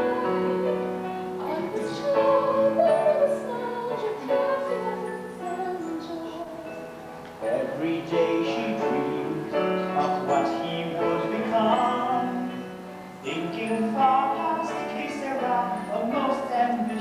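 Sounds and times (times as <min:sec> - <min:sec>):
woman singing: 0:00.0 - 0:07.9, 0:13.2 - 0:17.0
man singing: 0:07.4 - 0:17.0.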